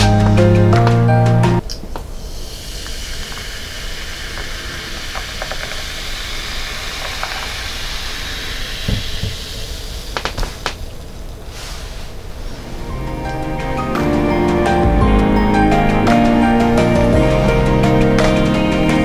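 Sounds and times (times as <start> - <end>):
fizz of carbonation: 2.3 - 10.2.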